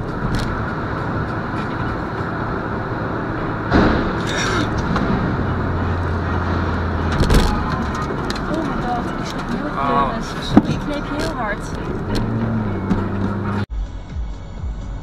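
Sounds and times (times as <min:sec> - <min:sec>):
car road and engine noise: 0:00.0 - 0:15.0
loud thump: 0:03.7 - 0:05.8.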